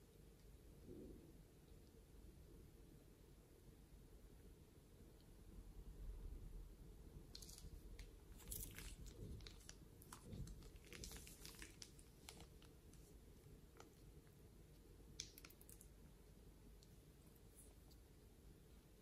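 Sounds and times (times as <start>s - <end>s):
plastic bag crinkling over slime: 7.3s - 14.1s.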